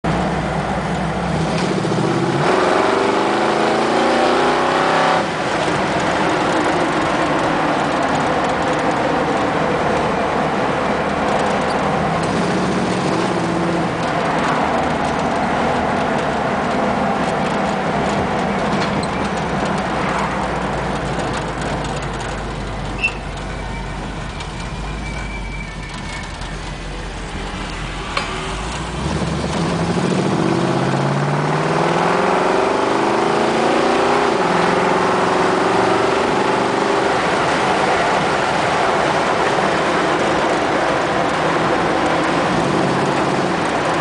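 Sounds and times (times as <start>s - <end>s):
car engine from inside cab: 26.8s - 44.0s.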